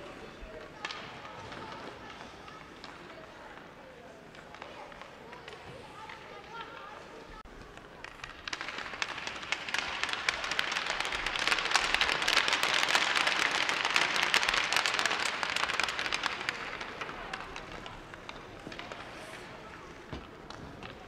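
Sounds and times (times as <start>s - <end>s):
spectators clapping: 8.0s - 21.0s.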